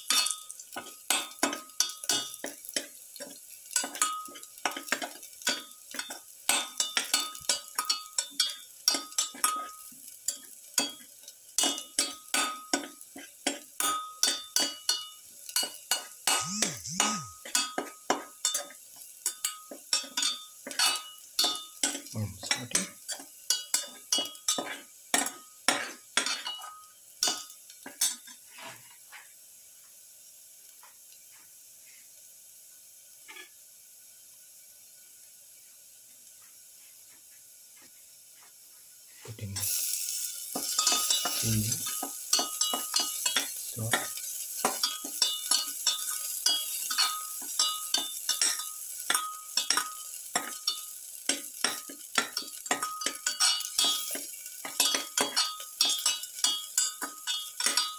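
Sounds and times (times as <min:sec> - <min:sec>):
faint oil sizzle: 0:00.0 - 0:57.9
metal spatula scraping a pan: 0:17.4 - 0:29.3, 0:39.6 - 0:57.9.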